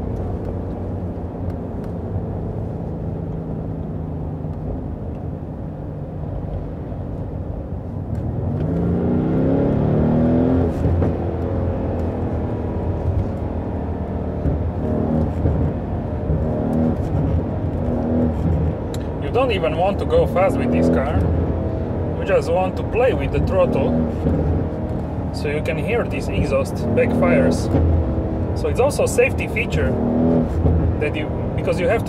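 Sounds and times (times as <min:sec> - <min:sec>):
car engine revving: 0:07.9 - 0:32.0
exhaust pops: 0:10.5 - 0:32.0.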